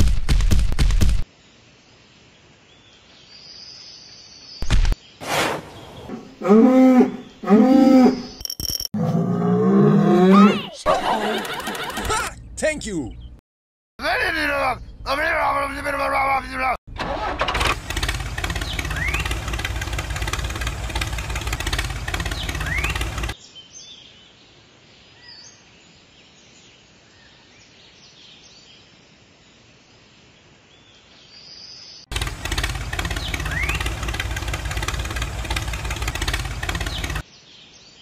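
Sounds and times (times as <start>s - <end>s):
tractor engine running: 11.0s - 12.3s, 16.9s - 23.4s, 32.1s - 37.2s.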